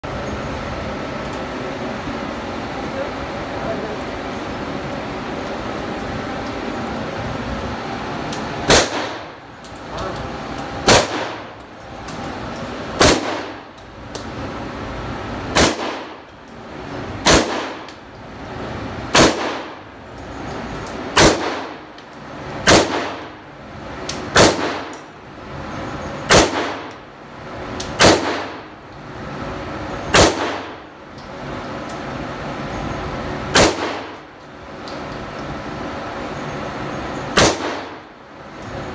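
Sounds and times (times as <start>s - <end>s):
handgun shots echoing indoors: 8.6s - 9.5s, 10.8s - 11.6s, 12.9s - 13.8s, 15.5s - 16.3s, 17.2s - 18.0s, 19.1s - 19.8s, 21.1s - 21.9s, 22.6s - 23.4s, 24.2s - 25.1s, 26.2s - 27.0s, 27.8s - 28.8s, 30.1s - 30.9s, 33.5s - 34.3s, 37.3s - 38.1s.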